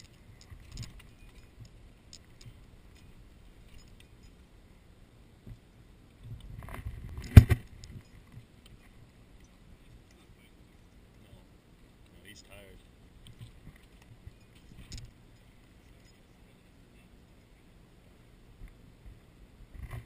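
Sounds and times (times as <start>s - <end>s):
rustling clatter: 0.0s - 4.4s, 13.2s - 16.5s.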